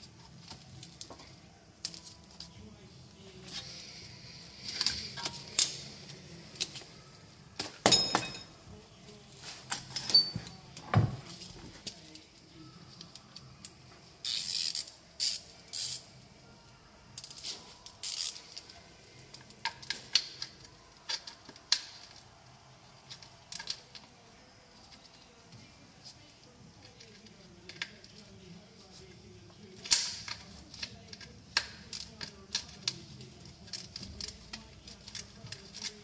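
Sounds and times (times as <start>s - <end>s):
metal tools clinking: 7.8s - 8.5s, 9.7s - 10.6s.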